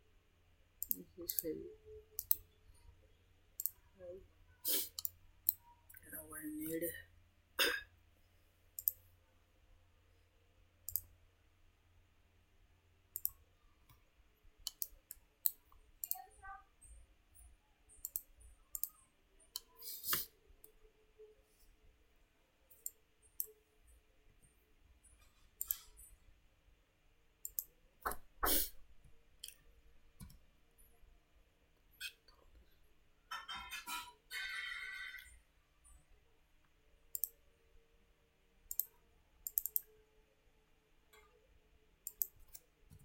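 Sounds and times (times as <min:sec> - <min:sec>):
computer mouse clicks: 0:00.8 - 0:01.5, 0:02.2 - 0:02.5, 0:03.6 - 0:03.8, 0:04.8 - 0:05.6, 0:08.8 - 0:09.1, 0:10.8 - 0:11.2, 0:13.1 - 0:14.0, 0:14.6 - 0:16.4, 0:17.9 - 0:20.8, 0:22.7 - 0:23.6, 0:25.2 - 0:26.1, 0:27.4 - 0:28.6, 0:37.1 - 0:37.4, 0:38.7 - 0:39.9, 0:42.0 - 0:43.0.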